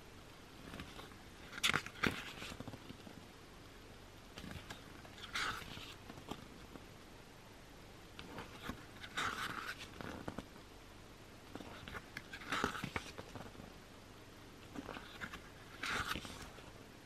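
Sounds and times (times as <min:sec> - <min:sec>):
book pages turning: 0:00.6 - 0:03.2, 0:04.4 - 0:06.8, 0:08.2 - 0:10.5, 0:11.5 - 0:13.6, 0:14.6 - 0:16.7
paper rustles and flaps: 0:00.6 - 0:03.2, 0:11.6 - 0:13.6, 0:14.8 - 0:16.7.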